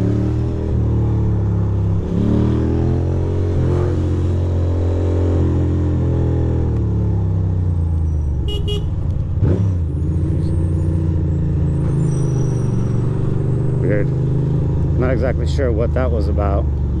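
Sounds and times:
horn toot: 8.4 - 9.0
motorcycle engine running: 8.4 - 9.4.

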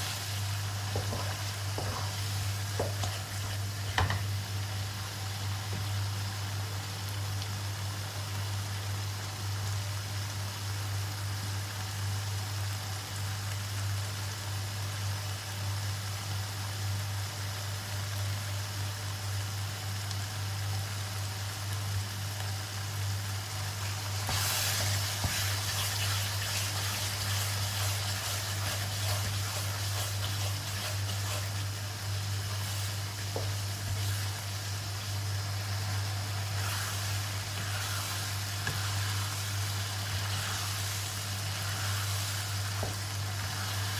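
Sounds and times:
wooden spatula stirring: 0.0 - 4.2, 24.2 - 31.8, 36.5 - 43.9
chilli paste sizzling in oil: 0.0 - 43.9.

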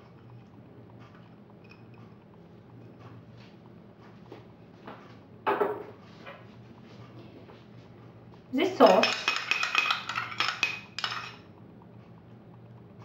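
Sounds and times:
kitchen items clattering: 8.6 - 11.5
kitchen clicks and taps: 8.7 - 11.5.

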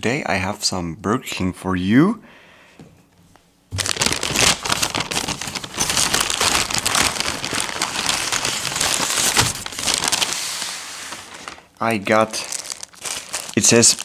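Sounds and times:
paper bag crinkling: 3.8 - 14.0.

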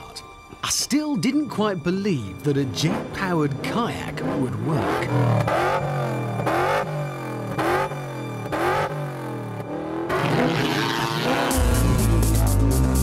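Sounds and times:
engine revving in blips: 2.8 - 13.0
deep bass music beat: 11.4 - 13.0.

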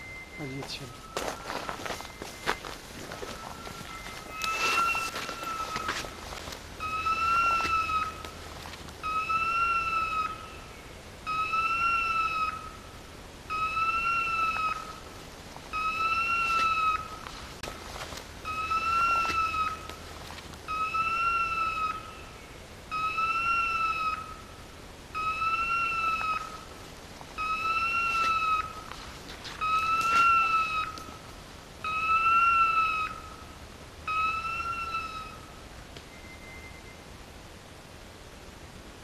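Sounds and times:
electronic collar beeps: 0.0 - 2.7.

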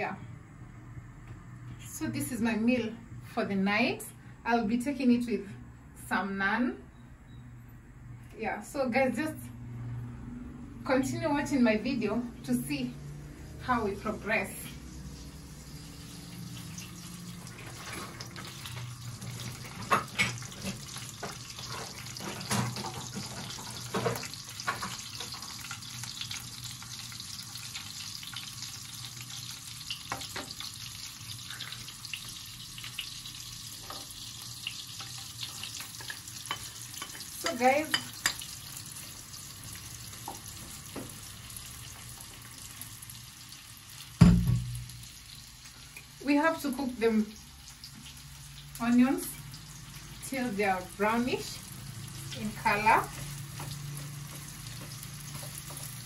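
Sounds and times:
butter sizzling in a pan: 14.0 - 56.0
utensils knocking on pan: 44.2 - 45.0.

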